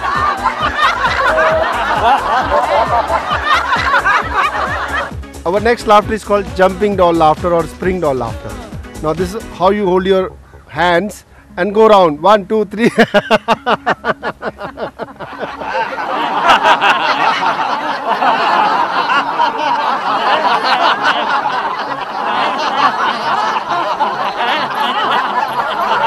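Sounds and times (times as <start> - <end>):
large group laughing: 0.0 - 5.1, 12.8 - 26.0
people laughing rhythmically: 0.0 - 10.0, 12.8 - 26.0.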